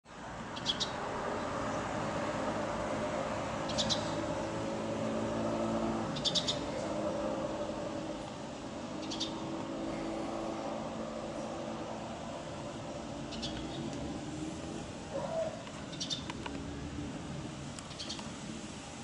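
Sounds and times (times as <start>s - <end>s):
city traffic hum: 0.0s - 19.0s
vehicle engine low hum: 0.1s - 19.0s
small bird chirping: 0.6s - 1.0s, 3.7s - 4.2s, 6.2s - 6.8s, 9.0s - 9.4s, 13.3s - 13.9s, 15.9s - 16.4s, 17.9s - 18.3s.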